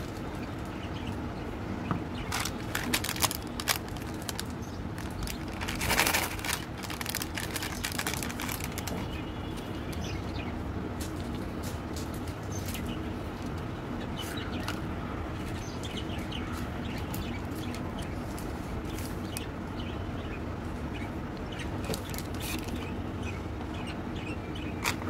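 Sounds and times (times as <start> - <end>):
steady low hum: 0.0 - 25.0
plastic wrappers crinkling: 2.2 - 9.2.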